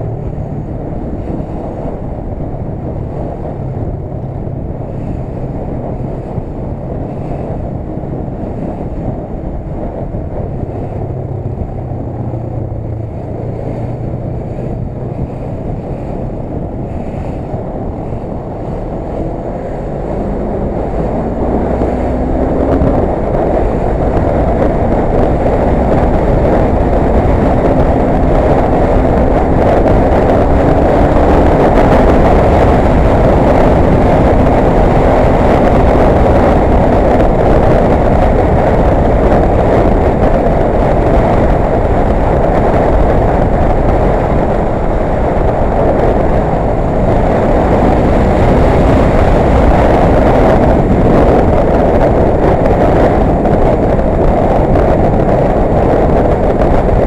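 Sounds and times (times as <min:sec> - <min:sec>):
motorcycle engine accelerating: 0:00.0 - 0:57.0
wind rushing over microphone: 0:00.0 - 0:57.0.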